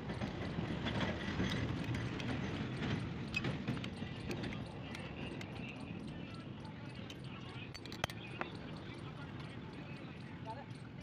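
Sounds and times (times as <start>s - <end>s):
metal parts clicking and knocking: 7.7s - 8.2s.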